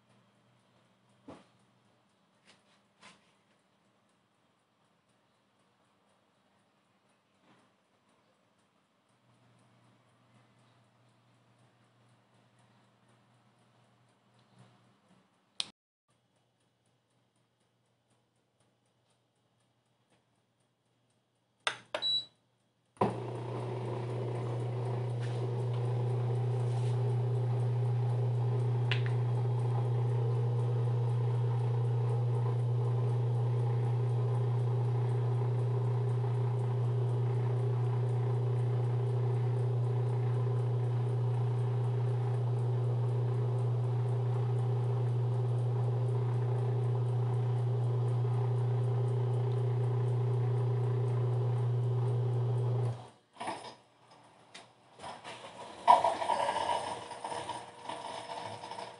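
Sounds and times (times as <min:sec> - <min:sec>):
dishwasher control panel beeps: 0:21.7 - 0:22.4
dishwasher running hum: 0:23.0 - 0:53.1, 0:55.1 - 0:58.9.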